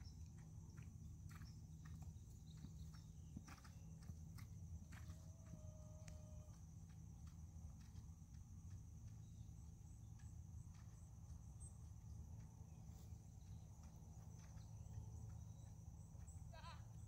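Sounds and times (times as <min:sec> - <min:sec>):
crickets trilling: 0:00.0 - 0:17.0
horse hoofbeats on sand: 0:00.0 - 0:17.0.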